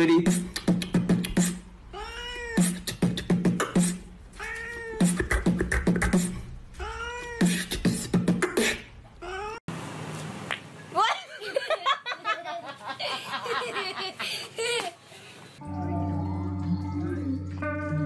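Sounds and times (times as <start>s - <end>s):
person beatboxing: 0.0s - 1.7s, 2.6s - 4.1s, 4.9s - 6.5s, 7.3s - 8.9s.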